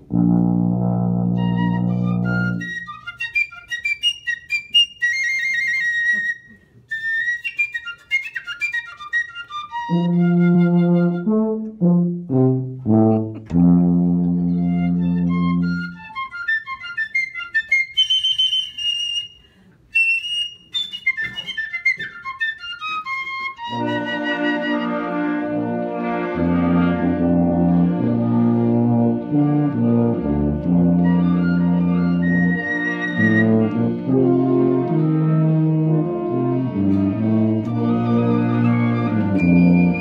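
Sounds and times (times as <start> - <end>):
tuba playing low notes: 0.0 - 3.0, 9.8 - 16.2, 23.6 - 40.0
piccolo playing quick runs: 0.1 - 11.6, 12.4 - 27.6, 30.8 - 35.8, 36.4 - 40.0.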